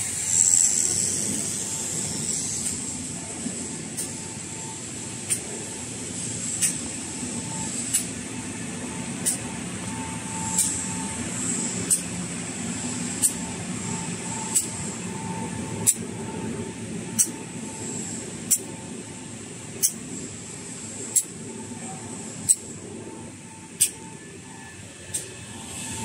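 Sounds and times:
machine humming and hissing: 0.0 - 26.0
sharp mechanical click: 6.6 - 6.8, 25.1 - 25.3.

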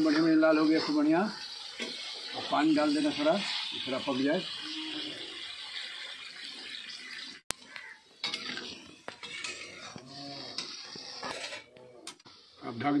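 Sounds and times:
pouring water hiss: 0.0 - 11.3
metal spoon scraping cooking pot: 8.2 - 12.2.

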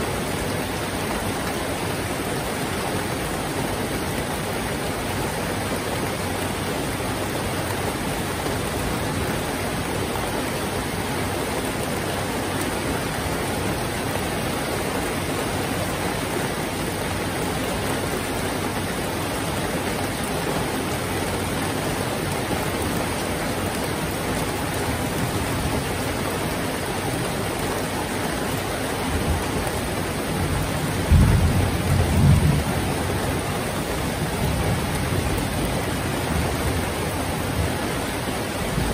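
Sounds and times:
heavy rain: 0.0 - 38.9
thunder rumbling: 30.5 - 36.9.

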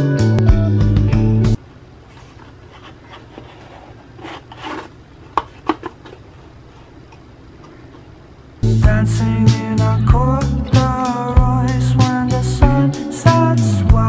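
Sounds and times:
music: 0.0 - 1.6, 8.6 - 14.0
tablet rubbing against box: 2.1 - 6.9.

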